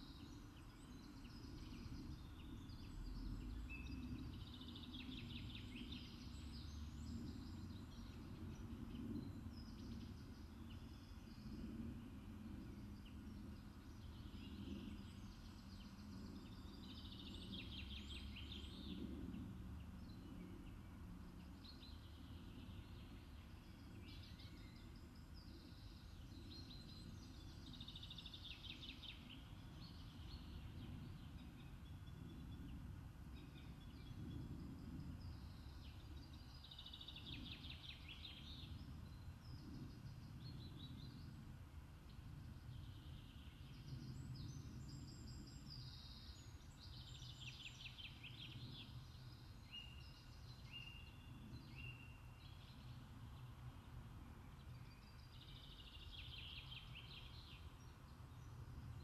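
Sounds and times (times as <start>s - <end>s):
steady low rumble: 1.0s - 46.2s.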